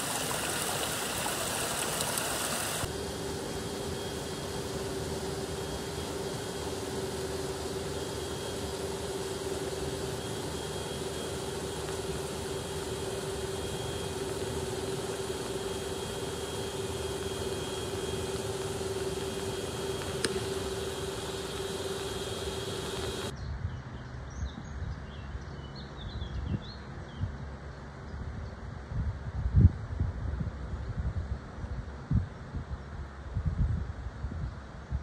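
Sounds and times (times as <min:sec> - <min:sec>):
constant water rushing: 0:00.0 - 0:23.3
turbine hum: 0:00.0 - 0:23.4.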